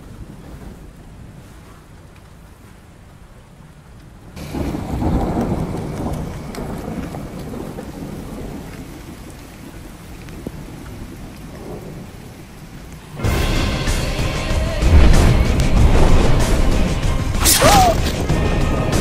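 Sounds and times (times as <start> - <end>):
steady rain: 0.0 - 19.0
thunder rolling: 4.3 - 19.0.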